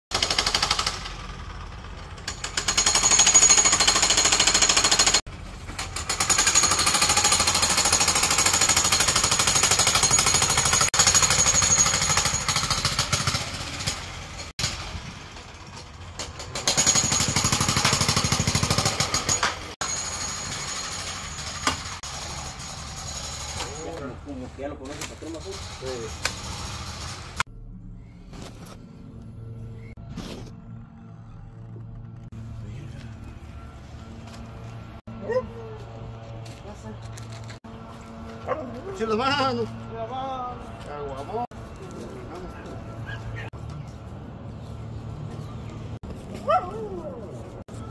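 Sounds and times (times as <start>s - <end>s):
jackhammer breaking concrete: 0.1s - 5.2s, 5.8s - 15.0s, 16.1s - 24.0s.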